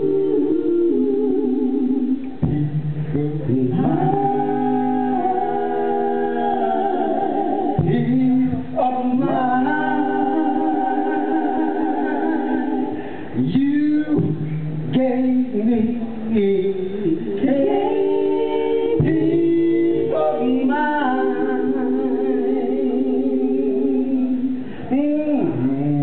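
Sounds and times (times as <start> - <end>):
held backing vocal chords: 0.0 - 26.0
vocal group singing close harmony: 0.0 - 26.0
man singing lead: 13.3 - 17.8.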